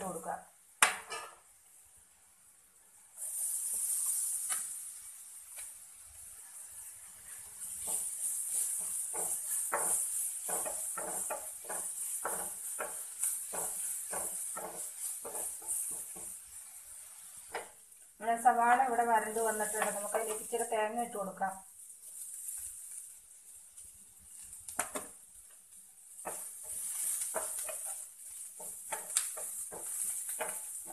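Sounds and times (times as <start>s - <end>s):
onion sizzling in oil: 0.0s - 30.9s
spatula scraping pan: 3.2s - 5.7s, 6.4s - 17.8s, 19.1s - 20.6s, 26.1s - 30.9s.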